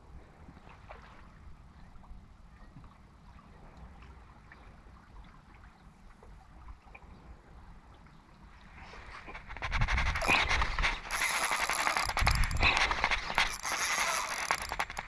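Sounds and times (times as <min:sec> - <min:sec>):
fishing reel clicking rapidly: 0:09.5 - 0:15.0.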